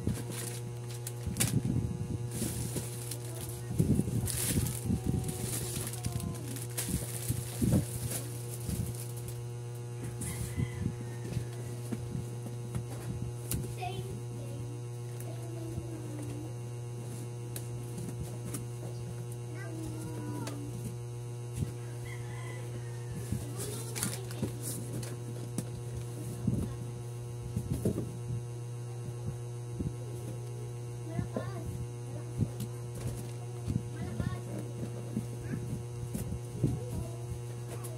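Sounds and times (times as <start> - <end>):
plastic rustling: 0.0 - 9.5, 23.2 - 26.7
low electrical hum: 0.0 - 37.9.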